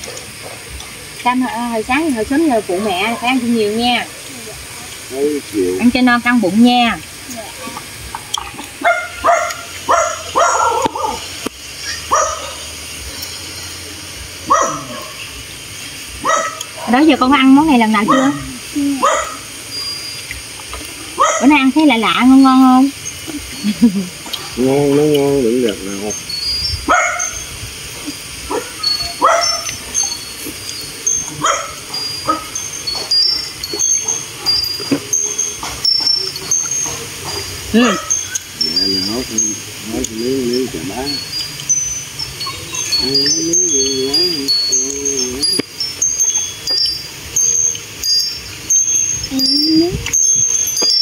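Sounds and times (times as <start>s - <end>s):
faint high chirps: 7.2s - 15.4s, 16.2s - 22.2s, 22.8s - 51.0s
dog barking in high yelps: 8.6s - 13.2s, 14.4s - 15.2s, 16.2s - 17.0s, 18.0s - 19.6s, 21.1s - 21.7s, 26.8s - 30.0s, 31.2s - 34.2s, 35.6s - 38.5s
dog whining and yelping: 8.8s - 11.2s, 28.0s - 34.6s.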